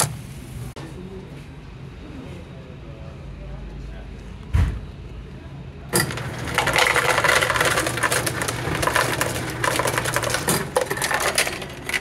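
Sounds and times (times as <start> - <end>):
dispenser low hum: 0.0 - 12.0
ice cubes clattering into cup: 6.0 - 12.0.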